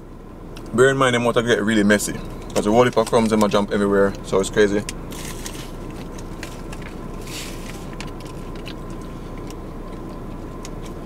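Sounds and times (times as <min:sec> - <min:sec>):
car cabin hum: 0:00.0 - 0:11.0
pastry crunching: 0:02.4 - 0:11.0
paper bag rustling: 0:05.1 - 0:08.7.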